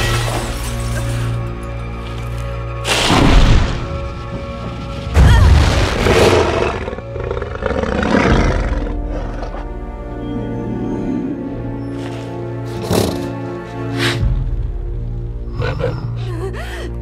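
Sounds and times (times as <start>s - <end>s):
dramatic orchestral music: 0.0s - 17.0s.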